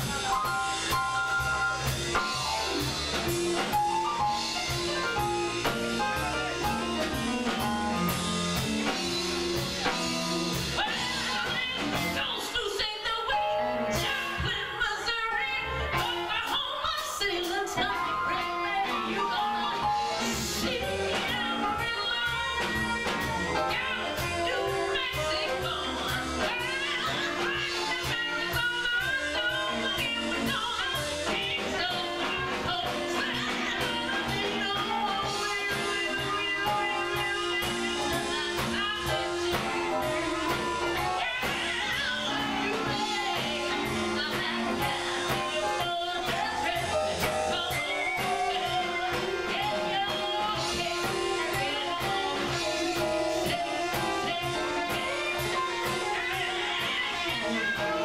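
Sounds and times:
drum beat: 0.0 - 12.2, 33.1 - 58.0
electric guitar: 0.0 - 14.7, 15.3 - 58.0
saxophone: 0.0 - 58.0.

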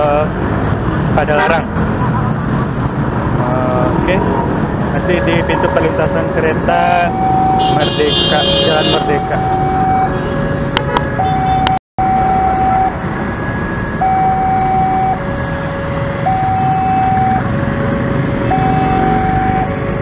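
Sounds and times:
motorcycle and car traffic: 0.0 - 20.0
two-tone crossing alarm: 5.2 - 20.0.

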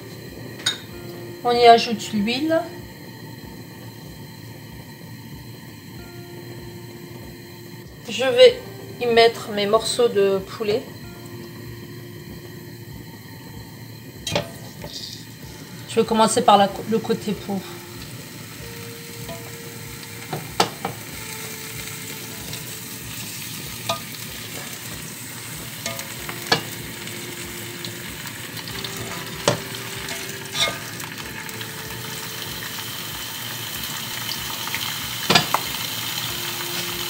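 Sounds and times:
chicken sizzling in oil: 0.0 - 37.0
oil popping: 9.2 - 37.0.

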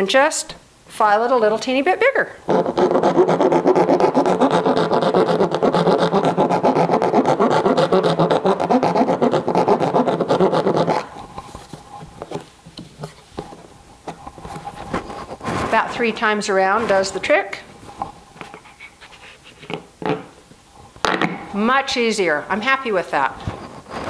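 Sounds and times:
file rasping in plastic bucket: 2.5 - 12.4.

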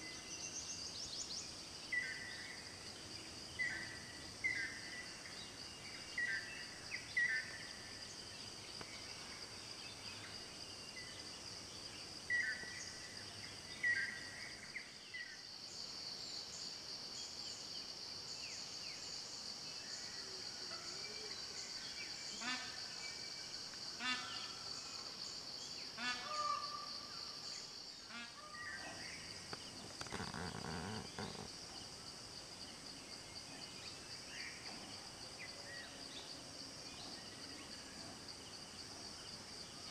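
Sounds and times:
rapid repeated bird calls: 20.0 - 32.1
high-pitched insect drone: 29.5 - 32.1.

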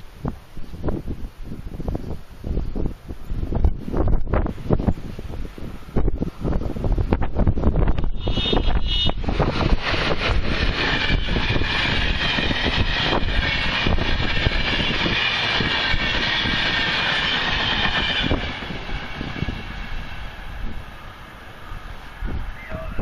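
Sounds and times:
locomotive horn toot: 7.8 - 9.3.

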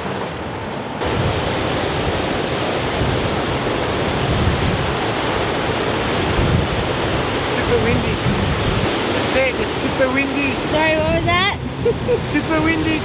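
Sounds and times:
ocean surf breaking on rocks: 0.0 - 13.0
wind rumbling on microphone: 0.0 - 13.0.

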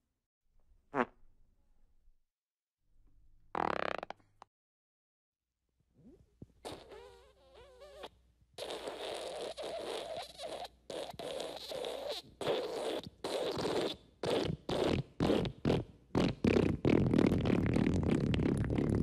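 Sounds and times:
fart sound effects: 0.9 - 1.2, 3.5 - 4.2, 6.0 - 19.0.

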